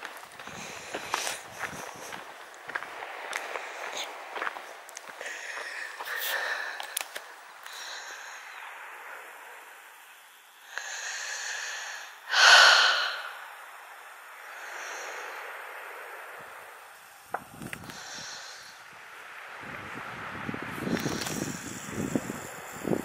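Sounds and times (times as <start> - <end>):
person breathing heavily: 0.4 - 2.4, 3.3 - 4.5, 5.1 - 9.8, 10.6 - 13.7, 14.4 - 16.4, 17.8 - 19.0.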